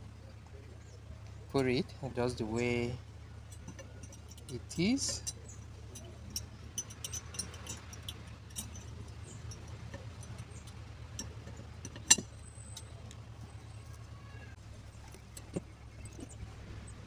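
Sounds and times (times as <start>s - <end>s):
steady low hum: 0.0s - 17.0s
small metallic clicks and taps: 3.5s - 13.3s.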